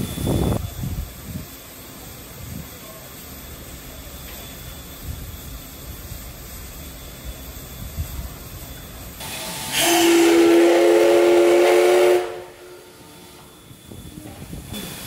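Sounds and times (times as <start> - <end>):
steam hissing: 0.0 - 15.0
steam whistle blast: 9.2 - 13.5.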